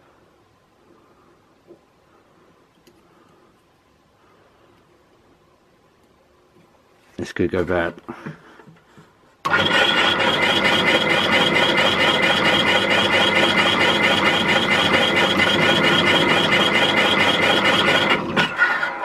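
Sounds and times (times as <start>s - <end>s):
bench drill running: 9.4s - 19.0s
drilling through metal: 9.5s - 19.0s.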